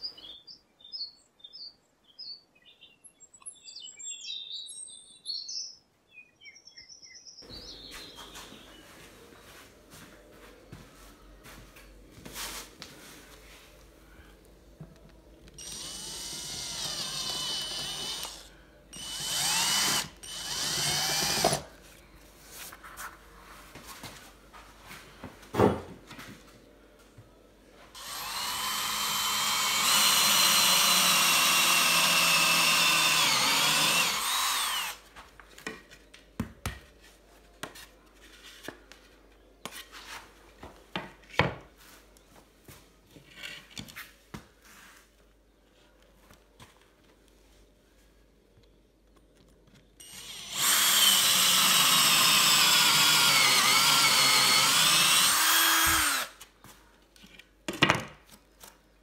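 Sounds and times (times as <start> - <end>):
cordless drill boring into wood: 15.6 - 21.6, 28.0 - 35.0, 50.0 - 56.4.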